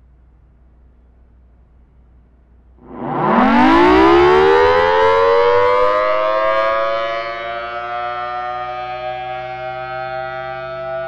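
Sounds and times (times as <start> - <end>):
warning siren wailing: 2.8 - 11.0.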